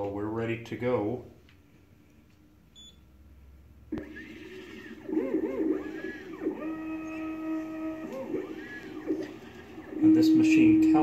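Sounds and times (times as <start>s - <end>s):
stepper motors whining: 3.9s - 11.0s.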